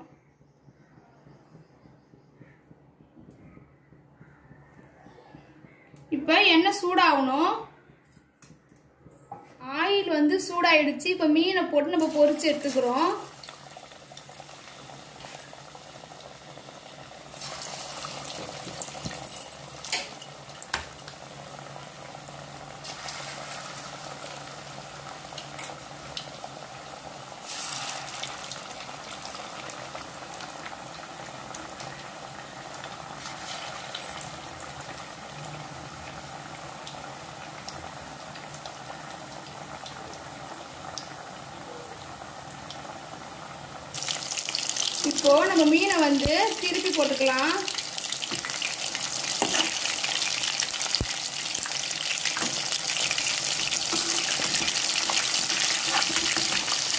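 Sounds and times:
hot oil sizzling and bubbling: 11.7s - 56.9s.

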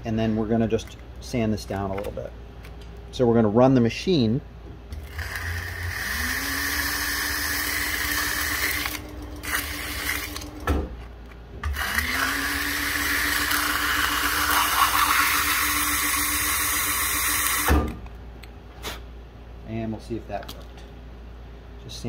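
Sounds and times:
sewing machine motor whine: 5.0s - 10.6s, 11.6s - 17.8s.

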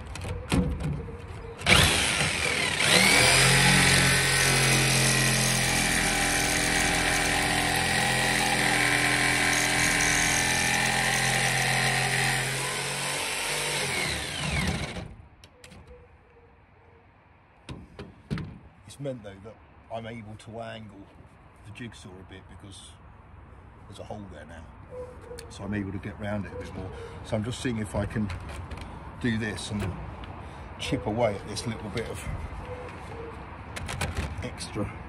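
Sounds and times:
electric jigsaw cutting steel: 1.6s - 15.1s.

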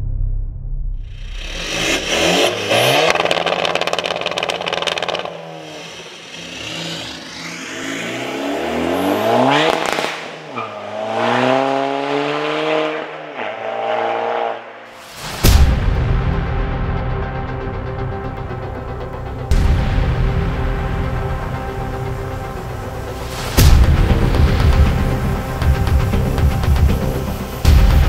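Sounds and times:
diesel car engine accelerating: 1.1s - 14.8s.

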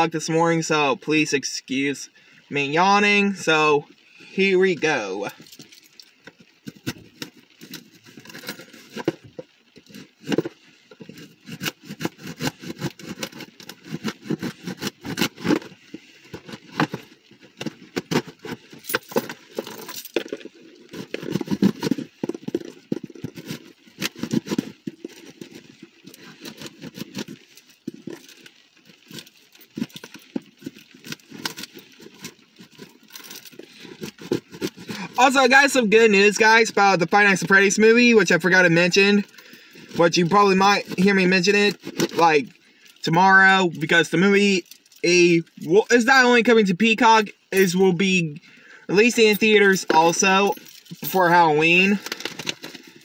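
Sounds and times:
cardboard box being opened: 16.4s - 28.4s.

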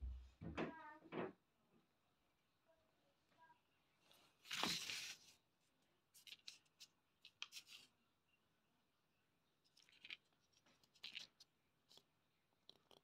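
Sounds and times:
paper rustling and scraping: 4.1s - 5.4s, 6.1s - 7.9s.

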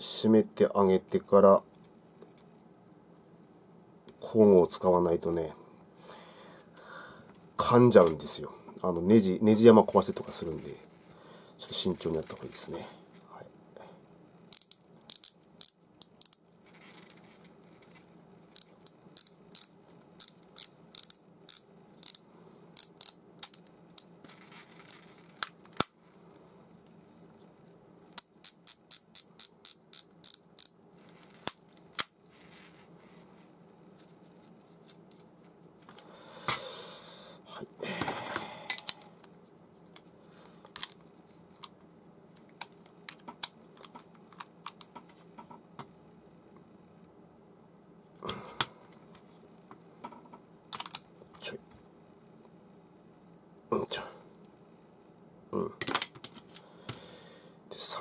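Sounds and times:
rustling scrape: 16.6s - 18.2s, 24.2s - 25.4s, 31.0s - 31.5s, 32.3s - 35.6s.

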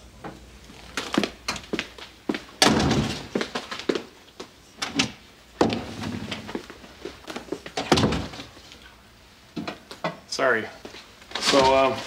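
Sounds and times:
door opening and shutting: 2.6s - 3.3s, 4.8s - 6.5s, 7.8s - 8.5s.

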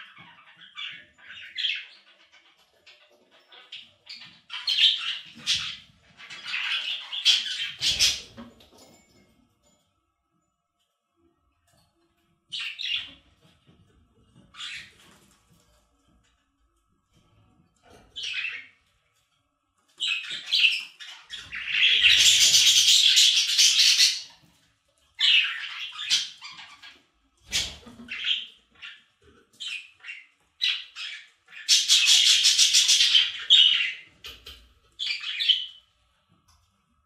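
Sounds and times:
budgies chattering and warbling: 0.0s - 8.9s, 12.5s - 15.4s, 17.4s - 19.1s, 19.9s - 24.5s, 25.1s - 35.9s.

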